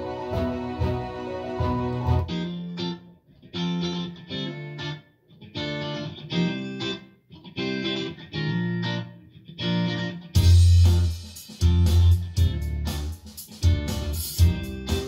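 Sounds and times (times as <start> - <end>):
full band with heavy bass: 0.0 - 2.3, 10.4 - 15.0
plucked guitar phrases: 0.0 - 15.0.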